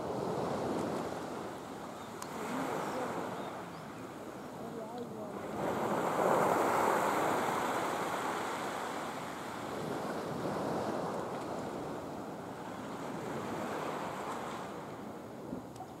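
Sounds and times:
sea waves washing: 0:00.0 - 0:16.0
wind on microphone: 0:00.0 - 0:16.0.

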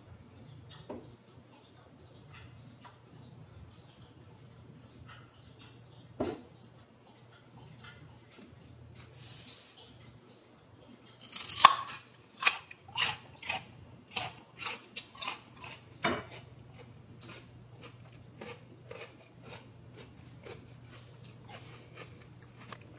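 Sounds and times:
crisp chewing crunches: 0:11.1 - 0:22.9
radish bitten with crack: 0:11.3 - 0:13.6.

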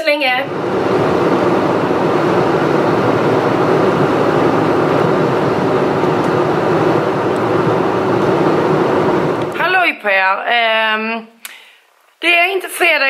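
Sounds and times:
car cabin road and engine noise: 0:00.4 - 0:09.6.

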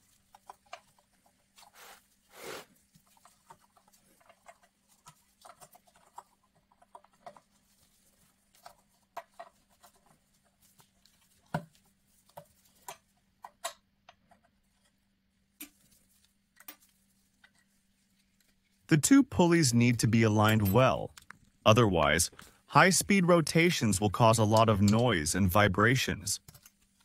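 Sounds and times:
faint clicks and taps: 0:02.9 - 0:15.0.

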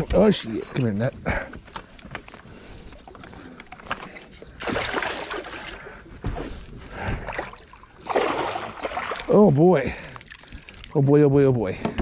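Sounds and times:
fish splashing in water: 0:04.6 - 0:05.9, 0:07.2 - 0:09.4.

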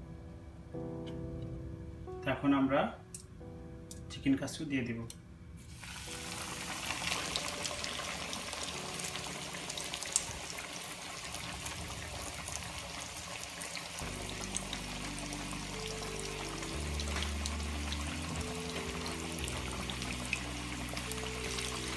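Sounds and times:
soft background music: 0:00.0 - 0:21.9
chicken sizzling in deep-frying oil: 0:05.6 - 0:21.9.

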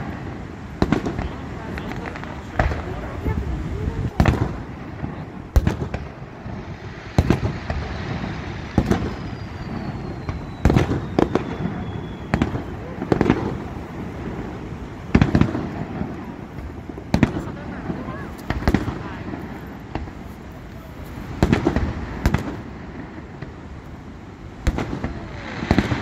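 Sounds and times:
fireworks bursting: 0:00.0 - 0:26.0
faint falling whistle: 0:09.1 - 0:12.8.

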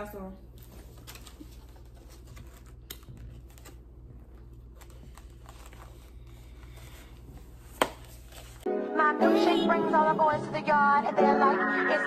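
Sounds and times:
low room hum: 0:00.0 - 0:08.7.

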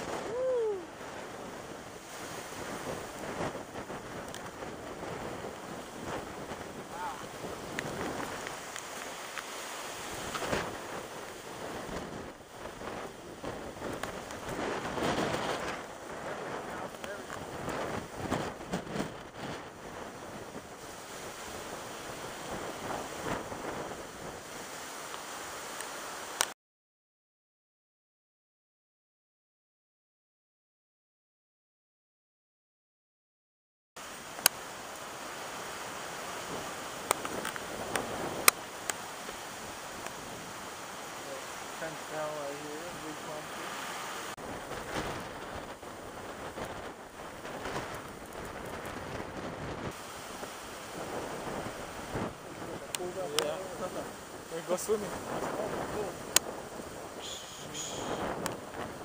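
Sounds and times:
strong wind on microphone: 0:00.0 - 0:26.3, 0:34.0 - 0:59.0
click: 0:58.4 - 0:58.6.

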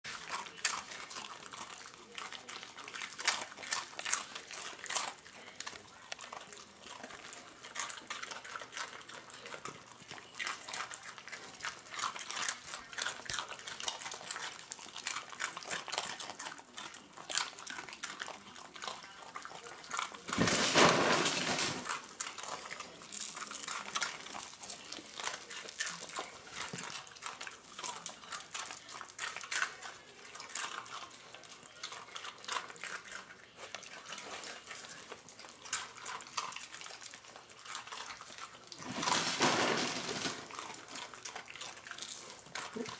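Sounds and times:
dogs crunching cereal: 0:00.0 - 0:42.9.

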